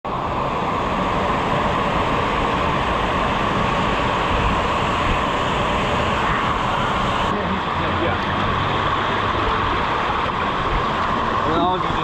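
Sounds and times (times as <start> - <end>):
water rushing down waterslide: 0.1 - 12.0.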